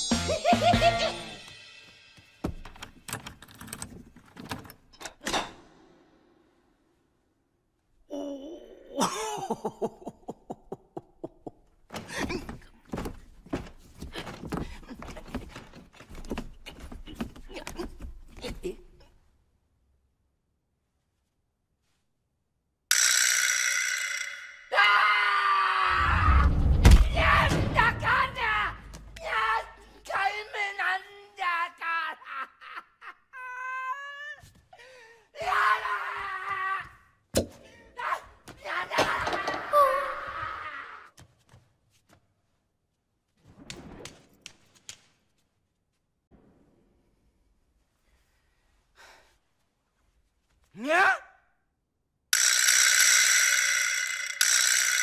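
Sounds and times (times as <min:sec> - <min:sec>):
man wailing and sobbing: 0:08.1 - 0:12.6, 0:27.1 - 0:37.1
man crying out: 0:27.1 - 0:34.5, 0:38.0 - 0:41.1, 0:50.8 - 0:51.4
man gasping: 0:34.7 - 0:35.4.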